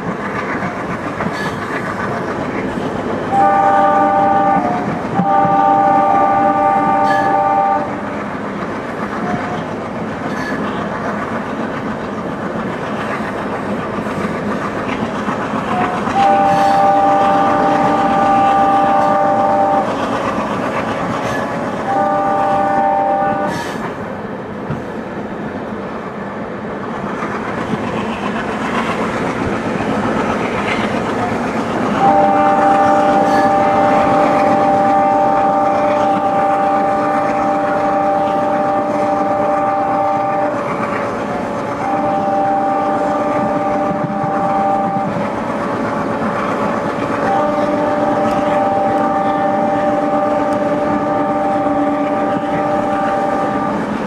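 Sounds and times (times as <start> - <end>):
train wheels rumbling on rail: 0.0 - 54.0
locomotive air horn blasts: 3.3 - 8.0, 15.7 - 20.3, 21.2 - 23.8, 32.0 - 45.4, 46.1 - 53.9.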